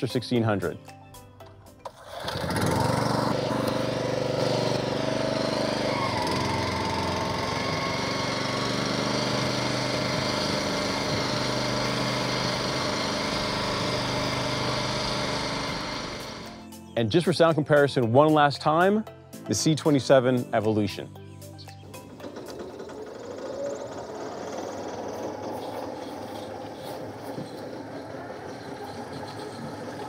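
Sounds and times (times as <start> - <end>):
reel mower engine running: 1.8 - 16.6, 21.8 - 30.0.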